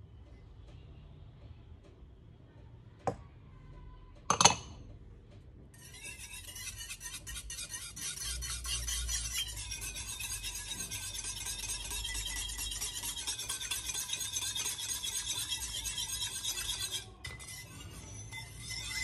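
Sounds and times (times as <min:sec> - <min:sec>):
whisk beating batter in bowl: 0:05.8 - 0:19.0.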